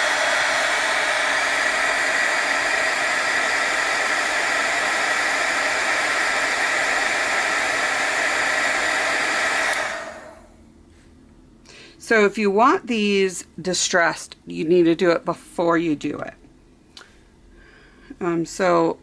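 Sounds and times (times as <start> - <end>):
heat gun blowing air: 0.0 - 10.5.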